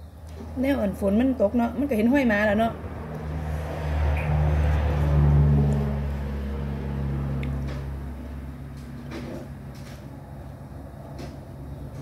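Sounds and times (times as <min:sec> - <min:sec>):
vehicle engine hum passing: 0:00.2 - 0:12.0.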